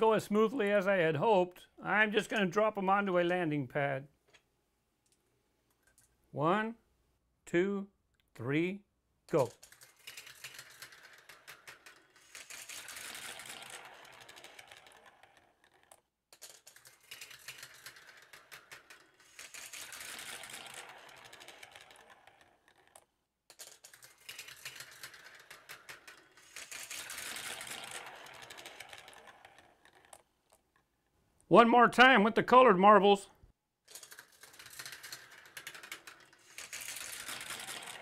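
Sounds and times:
marbles clicking on plastic track: 0:09.3 - 0:30.9, 0:33.8 - 0:38.0
marbles rolling along track: 0:09.3 - 0:30.9, 0:33.8 - 0:38.0.

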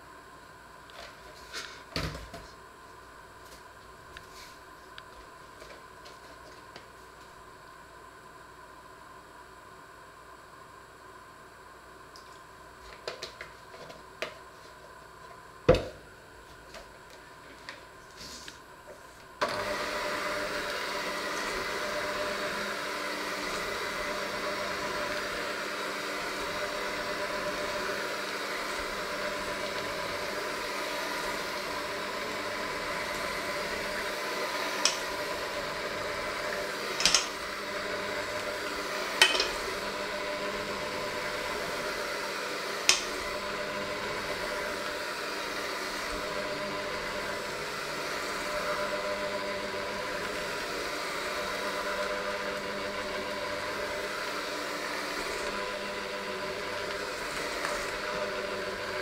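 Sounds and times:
electric mixer whining: 0:13.0 - 0:59.0.

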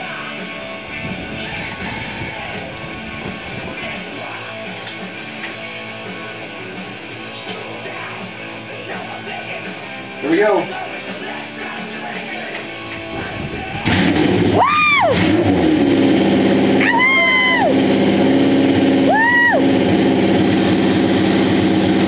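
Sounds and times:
motorcycle engine starting and revving: 0:13.6 - 0:22.0.

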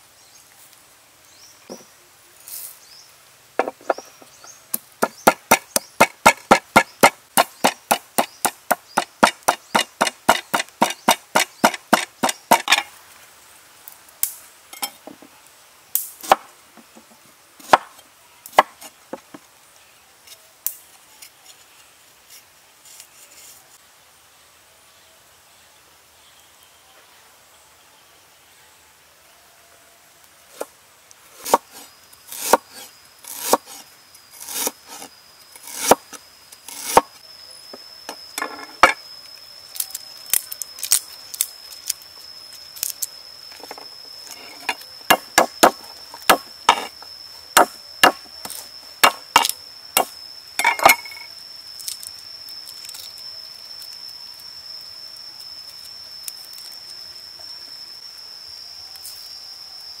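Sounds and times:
high-pitched insect drone: 0:03.6 - 0:13.0, 0:30.5 - 1:00.0
cleaver chopping on wooden board: 0:05.0 - 0:12.8.

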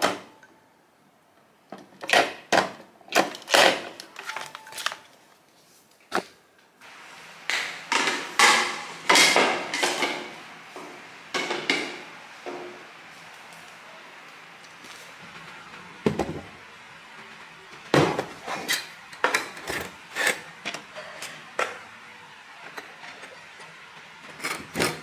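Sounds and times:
low background noise: 0:00.0 - 0:25.0
pvc pipes being handled: 0:03.1 - 0:06.4.

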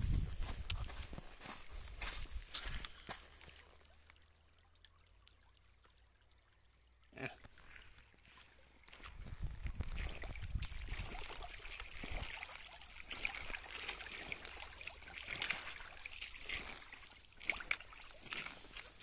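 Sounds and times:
gravel crunching underfoot: 0:00.0 - 0:03.8, 0:15.3 - 0:19.0
boots splashing through shallow water: 0:00.0 - 0:04.3, 0:07.4 - 0:19.0.

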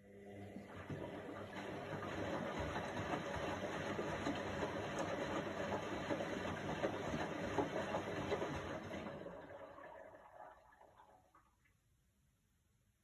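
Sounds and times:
washing machine churning: 0:00.1 - 0:11.4
small knocks in washing drum: 0:00.8 - 0:09.0.

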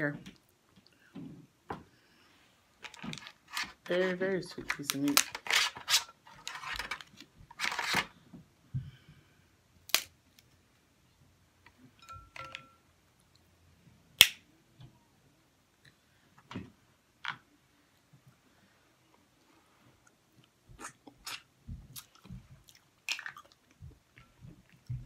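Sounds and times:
sharp shell snaps: 0:14.2 - 0:14.4.

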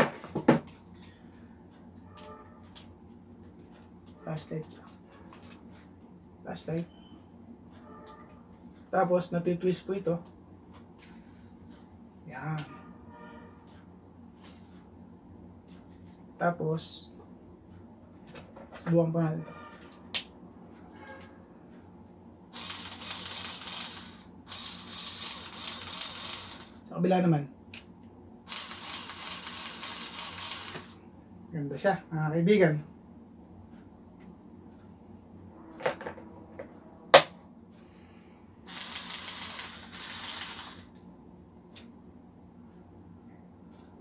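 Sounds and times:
cordless drill whirring: 0:22.6 - 0:26.8, 0:28.5 - 0:31.0, 0:38.7 - 0:40.9.

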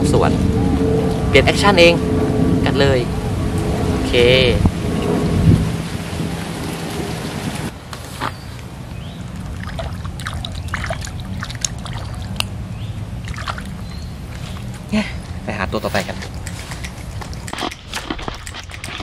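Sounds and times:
wind rumble on microphone: 0:00.0 - 0:07.8
light water splashes: 0:09.2 - 0:14.9.

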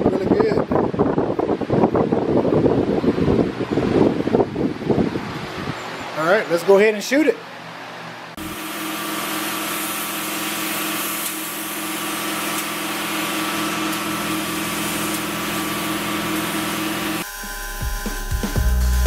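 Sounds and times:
machine hum with low pulse: 0:07.7 - 0:19.0
spray gun hissing: 0:08.4 - 0:19.0.

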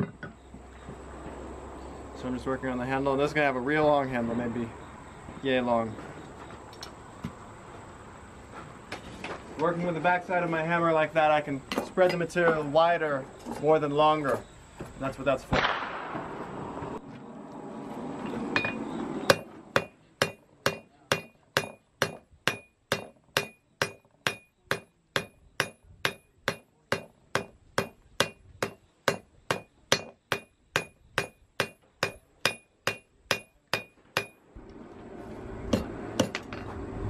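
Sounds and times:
hammer striking iron on anvil: 0:18.6 - 0:34.4, 0:35.7 - 0:36.6.

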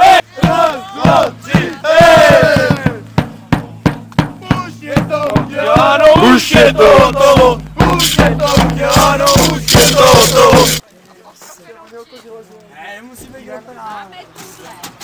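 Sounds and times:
crowd chanting and shouting: 0:00.0 - 0:10.8
bass drum beats: 0:00.3 - 0:10.8.

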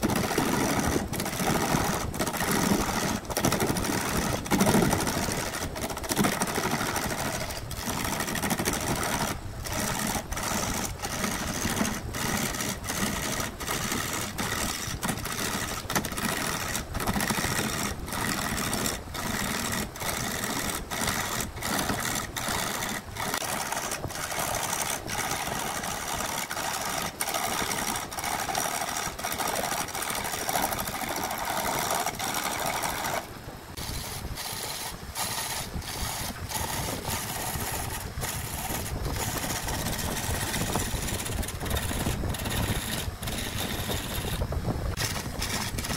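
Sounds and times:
wood lathe whirring and scraping: 0:00.0 - 0:45.9.

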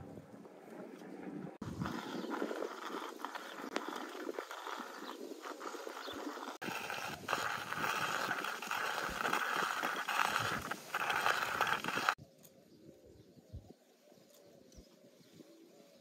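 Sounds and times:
coffee grinder grinding beans: 0:01.6 - 0:12.2.

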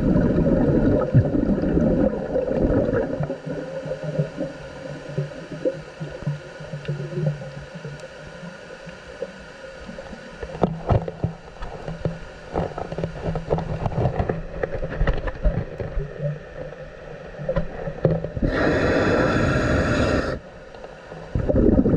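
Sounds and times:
underwater clicks and crackles: 0:00.1 - 0:21.9
breath through scuba regulator: 0:18.4 - 0:20.5.

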